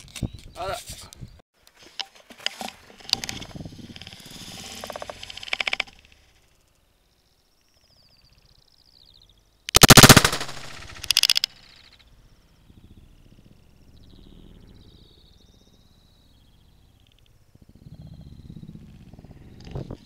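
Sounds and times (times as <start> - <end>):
rapid gunfire bursts: 9.8 - 11.5.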